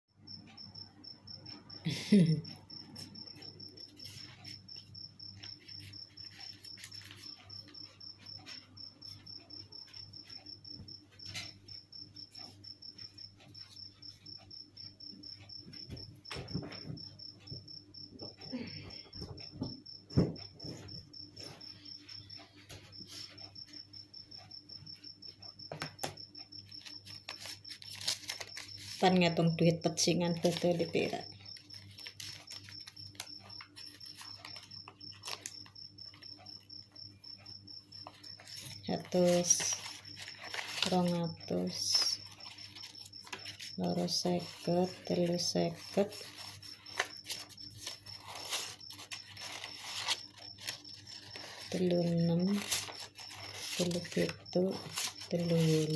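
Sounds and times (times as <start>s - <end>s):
cricket chirping: 0.2s - 55.9s
handling knocks and thumps: 15.8s - 21.0s.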